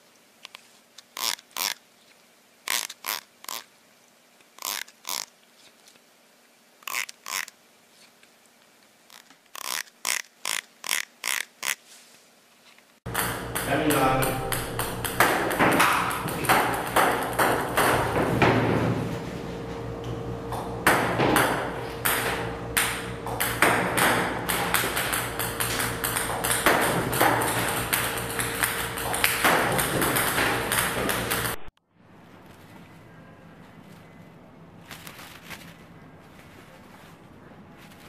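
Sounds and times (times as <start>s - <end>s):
ping-pong balls clicking on table: 13.1s - 18.2s, 20.9s - 31.6s
steady machine hum: 13.1s - 34.9s.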